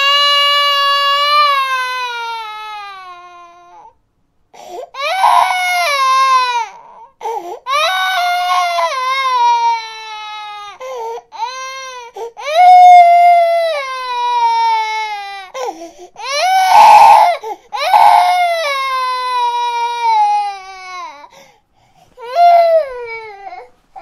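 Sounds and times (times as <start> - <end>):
baby crying: 0.0 - 4.0, 4.6 - 21.4, 22.2 - 24.0.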